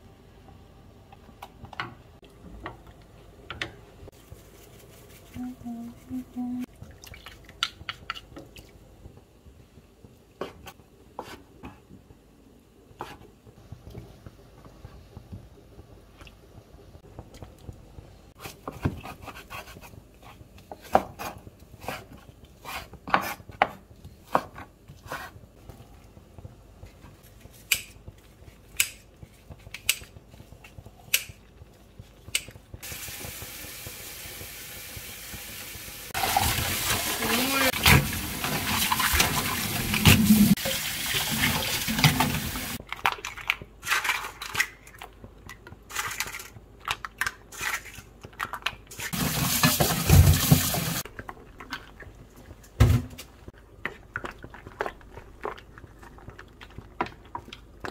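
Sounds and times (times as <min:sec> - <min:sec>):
tap water running into sink: 0:33.0 - 0:42.8, 0:49.2 - 0:51.0.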